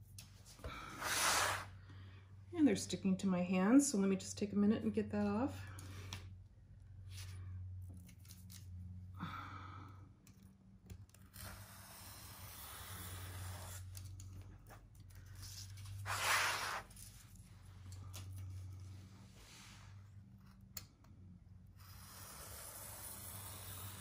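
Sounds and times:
craft knife scraping paper: 11.3 - 14.1, 15.3 - 17.2.

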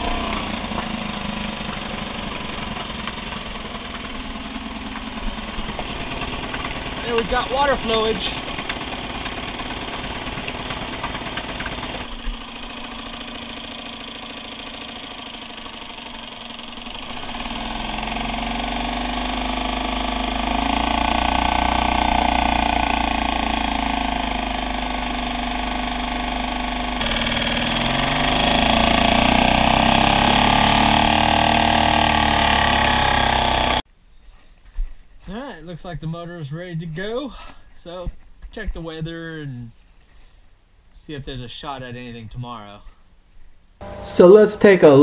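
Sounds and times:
outboard motor running: 0.0 - 33.8, 43.8 - 44.8.

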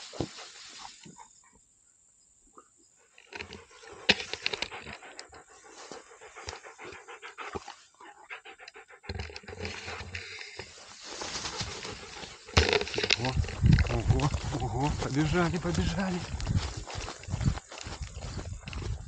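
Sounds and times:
rustling in tall grass: 0.0 - 1.3, 9.6 - 19.0
dog panting hard: 3.5 - 10.6.

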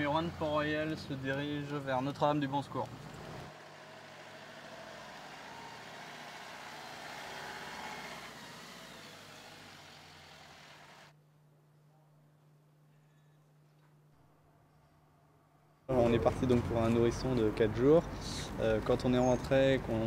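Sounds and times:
van driving past: 2.7 - 11.1.

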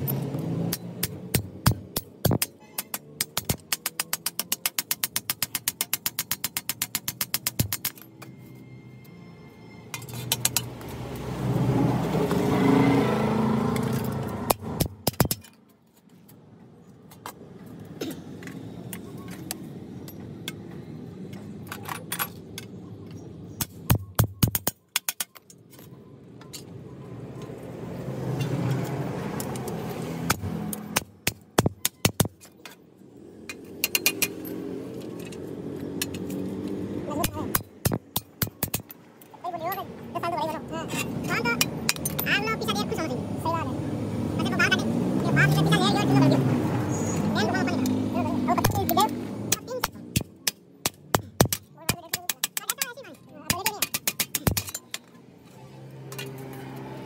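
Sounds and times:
vehicle passing: 0.0 - 1.4, 8.6 - 14.8, 26.8 - 31.2, 32.9 - 37.8, 38.9 - 51.2, 55.1 - 57.0.

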